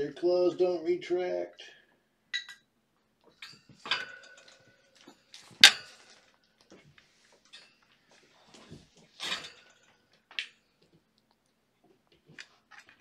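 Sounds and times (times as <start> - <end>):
metal dishes clattering: 3.3 - 6.3, 9.1 - 10.1.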